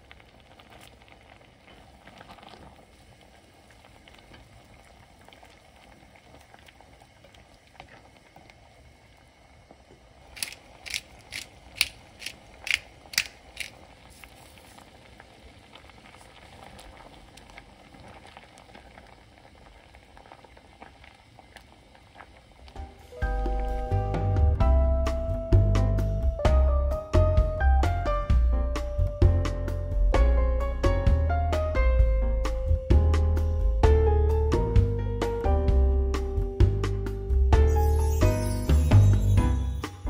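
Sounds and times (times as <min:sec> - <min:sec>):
soup bubbling in a pot: 0:00.0 - 0:24.2
pepper grinder clicking: 0:10.4 - 0:13.8.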